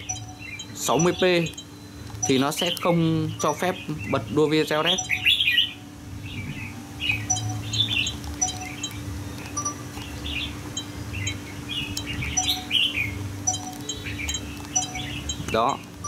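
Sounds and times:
small birds chirping: 0.0 - 16.0
steady low hum: 0.0 - 16.0.

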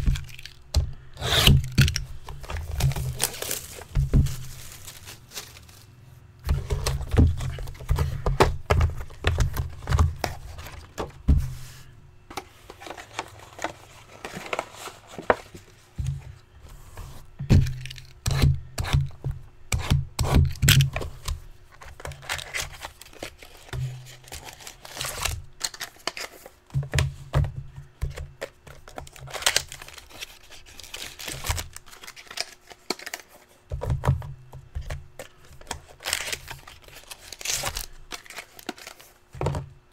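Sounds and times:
wrappers crinkling and tearing: 1.4 - 6.0, 22.1 - 26.6, 28.8 - 33.6, 35.6 - 39.3.

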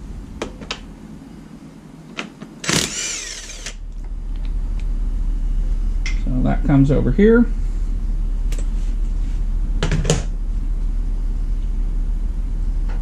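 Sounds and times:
steady low hum: 0.0 - 13.0
impact wrench motor whine: 2.6 - 3.8.

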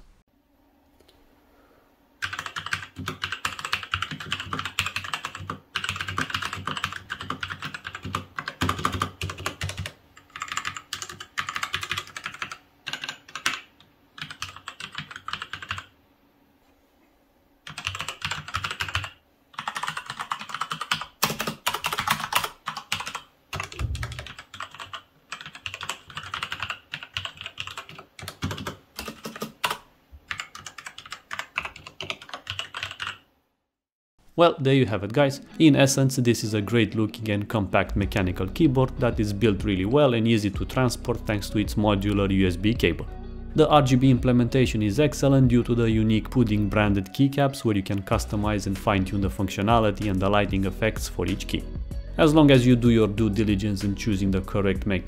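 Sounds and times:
mechanical keyboard typing: 2.2 - 15.9, 17.7 - 33.2.

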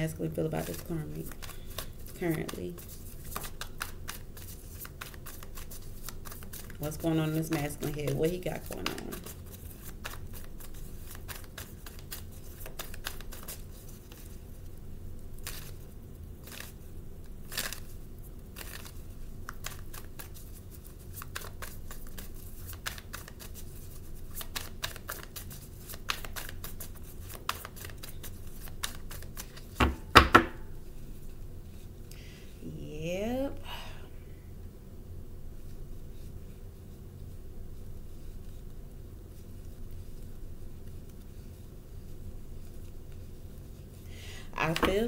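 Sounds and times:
low room hum: 0.0 - 45.0
cards being shuffled: 0.5 - 14.4, 15.4 - 15.8, 16.4 - 16.8, 17.5 - 31.1, 44.5 - 45.0.

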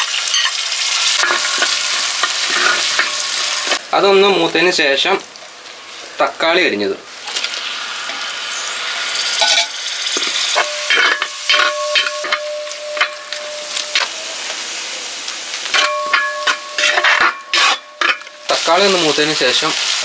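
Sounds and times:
tomatoes sizzling in oil: 0.0 - 20.0
metal spoon scraping pan: 0.3 - 3.8, 9.4 - 14.2, 15.7 - 19.2.

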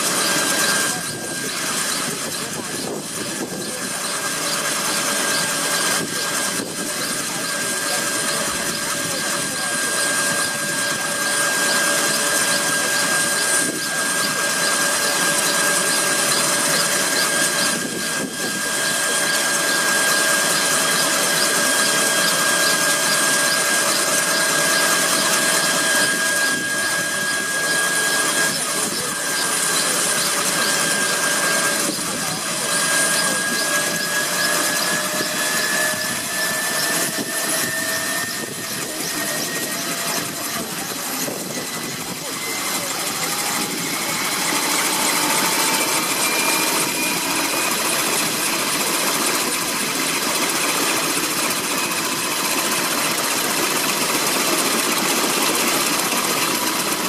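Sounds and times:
helicopter engine whine: 0.0 - 57.0
helicopter rotors rushing: 0.0 - 57.0.

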